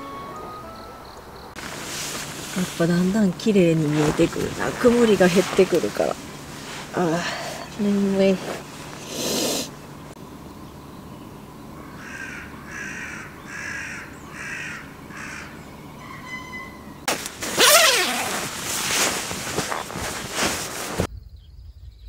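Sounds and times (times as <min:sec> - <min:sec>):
sleeping bag rustling: 0:01.6 - 0:09.8, 0:17.1 - 0:21.1
crow cawing: 0:11.8 - 0:15.7.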